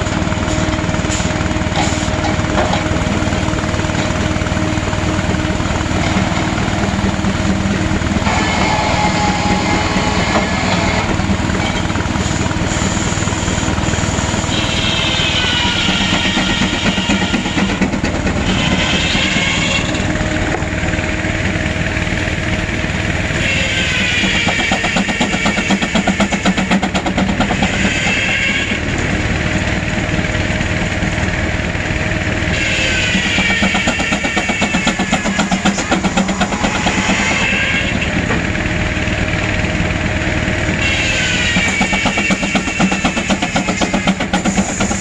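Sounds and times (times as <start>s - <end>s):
steam engine rumble: 0.0s - 45.0s
circular saw whine: 3.0s - 17.8s, 31.2s - 44.1s.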